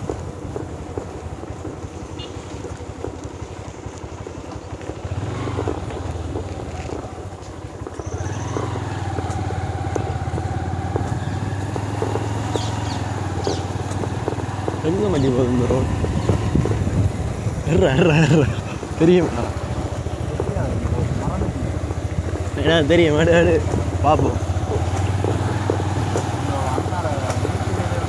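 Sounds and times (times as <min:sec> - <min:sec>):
motorcycle engine running: 0:00.0 - 0:28.0.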